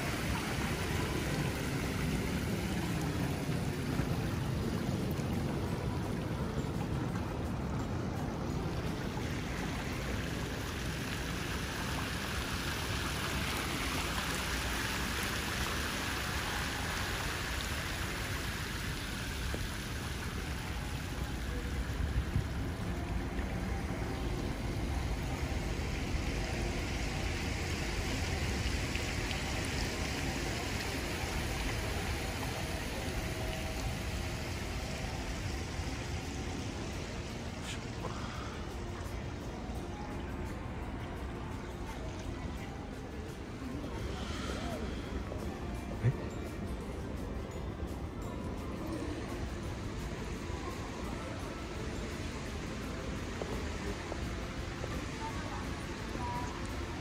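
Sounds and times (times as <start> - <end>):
rushing outdoor background noise: 0.0 - 57.0.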